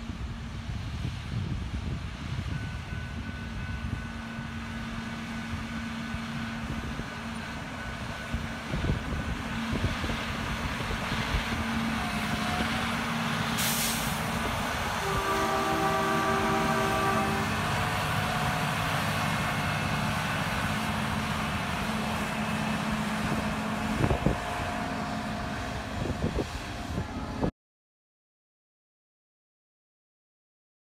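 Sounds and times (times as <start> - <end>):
railway machine engine drone: 0.0 - 27.5
air hiss: 13.6 - 14.4.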